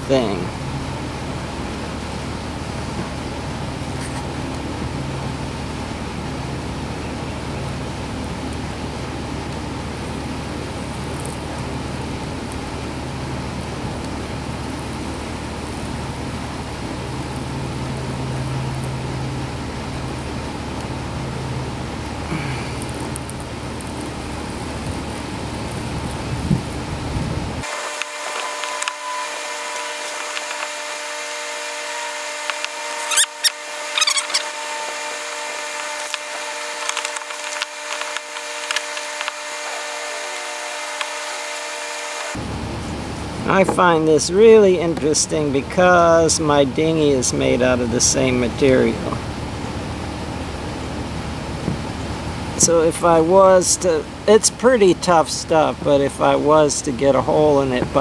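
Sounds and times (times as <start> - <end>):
steady low hum: 0.0 - 58.0
welding iron scraping plastic: 3.9 - 4.4, 27.6 - 42.4
plastic crackling: 27.6 - 30.9, 32.4 - 41.3.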